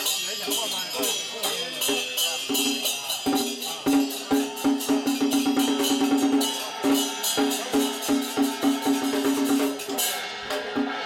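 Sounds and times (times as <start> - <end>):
cymbals clashing: 0.0 - 11.0
temple gong and drum percussion: 0.0 - 11.0.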